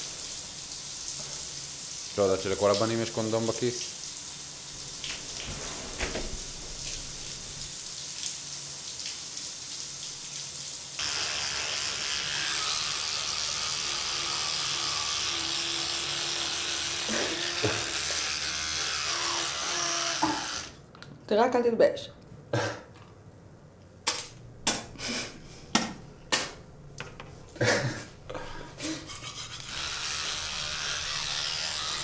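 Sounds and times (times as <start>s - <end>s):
shower water hissing: 0.0s - 20.8s
electric toothbrush buzzing: 11.0s - 20.8s, 28.8s - 32.0s
teeth being brushed: 28.9s - 32.0s.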